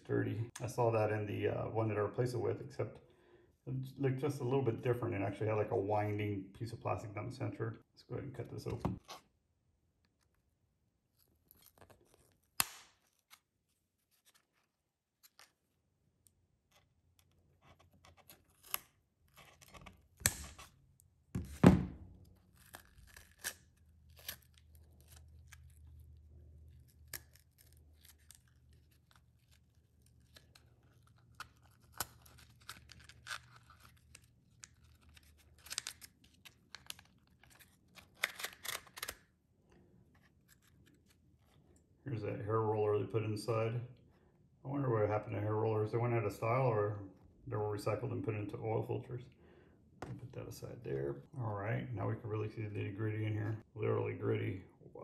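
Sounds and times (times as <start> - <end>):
paper crackling and tearing: 11.1 - 15.6, 22.2 - 39.2.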